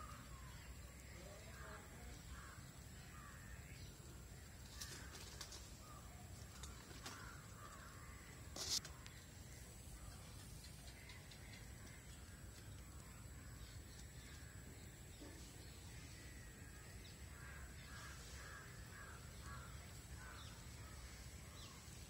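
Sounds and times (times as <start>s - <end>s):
faint outdoor ambience: 0.0s - 22.0s
crows cawing: 6.6s - 8.8s, 17.3s - 21.0s.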